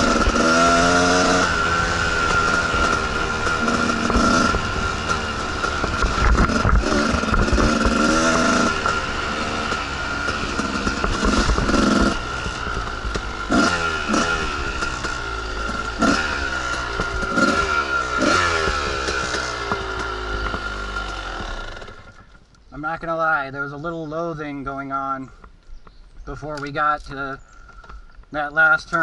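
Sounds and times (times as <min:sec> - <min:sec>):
engine rev blips: 0:00.0 - 0:22.2
dirt bike engine revving: 0:00.0 - 0:22.4.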